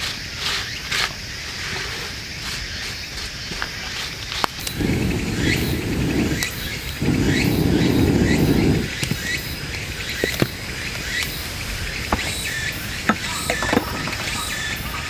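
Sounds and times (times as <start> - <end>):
wood fire crackling and popping: 4.2 - 15.0
low rumbling: 4.7 - 15.0.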